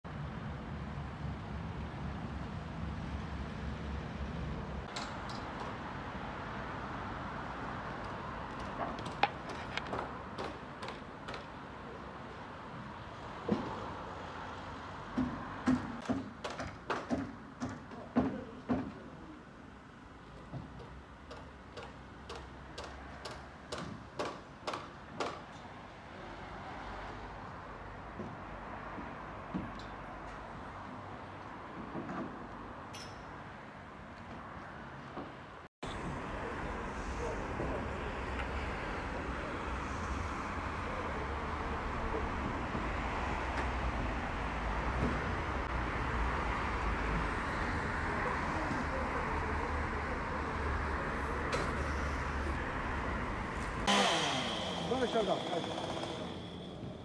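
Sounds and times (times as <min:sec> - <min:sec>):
hammer blows: 0:53.8 - 0:57.0.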